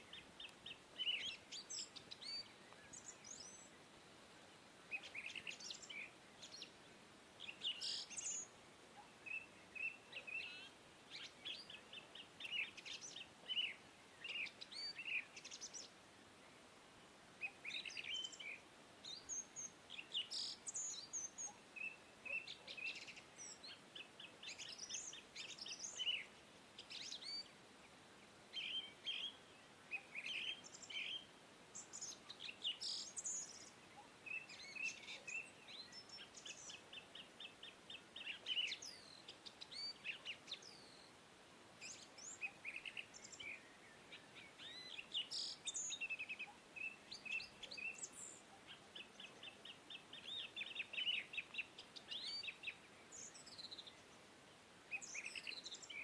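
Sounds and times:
birds chirping and singing: 0:00.0 - 0:03.7, 0:28.6 - 0:41.1, 0:41.8 - 0:54.2.

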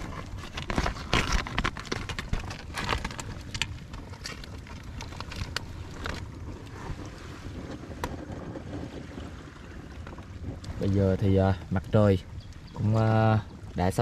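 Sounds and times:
sharp clicks and rustles: 0:00.0 - 0:06.6
water slapping against raft: 0:00.0 - 0:14.0
wind on microphone: 0:04.5 - 0:14.0.

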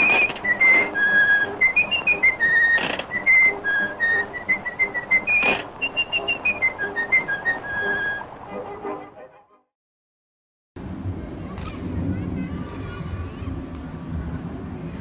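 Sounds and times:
whistled tune: 0:00.0 - 0:08.3.

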